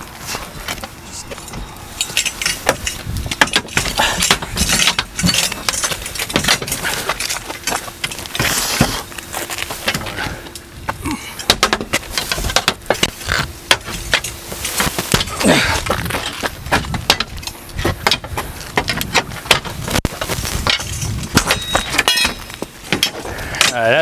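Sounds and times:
crowbars clanking on metal safe: 0.6s - 9.0s, 20.7s - 23.9s.

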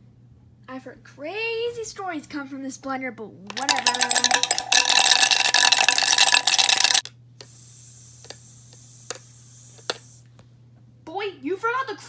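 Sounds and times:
toy blender buzzing rattle: 3.5s - 7.1s.

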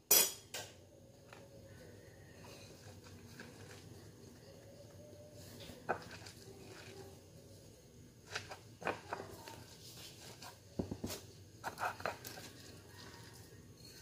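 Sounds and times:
kitchen items knocking and clicking: 10.8s - 14.0s.

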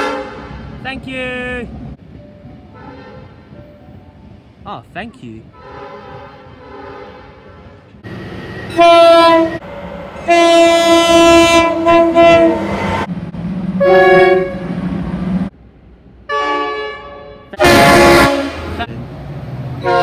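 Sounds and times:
locomotive horn blasts: 0.0s - 0.7s, 2.7s - 3.5s, 5.5s - 7.9s, 8.7s - 9.6s, 10.2s - 13.1s, 13.8s - 14.7s, 16.3s - 18.9s, 19.8s - 20.0s.

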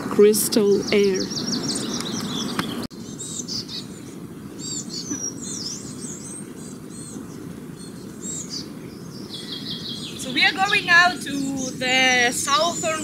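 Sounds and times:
songbirds chirping and calling: 0.0s - 13.0s.

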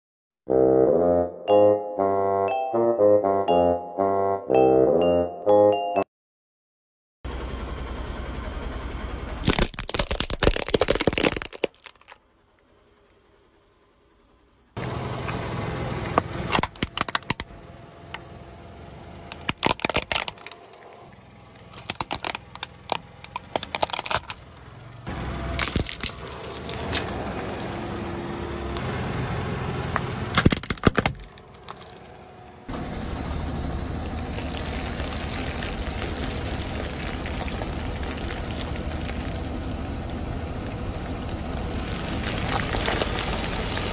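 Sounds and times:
aluminium foil crinkling: 9.4s - 12.2s, 19.4s - 20.6s
car tire crushing plastic: 9.4s - 12.2s, 16.2s - 17.5s, 19.3s - 20.9s, 21.6s - 24.5s, 25.6s - 27.2s, 30.3s - 32.3s, 34.2s - 39.8s, 41.6s - 43.9s
plastic toy car crunching: 9.4s - 12.2s, 16.5s - 17.5s, 19.3s - 20.9s, 21.6s - 24.4s, 25.5s - 27.2s, 30.3s - 32.3s, 34.2s - 39.8s, 41.7s - 43.9s.

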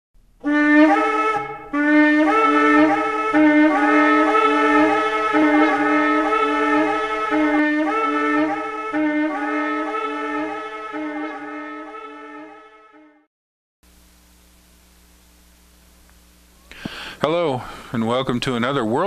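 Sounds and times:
horn playing long notes: 0.4s - 13.3s.

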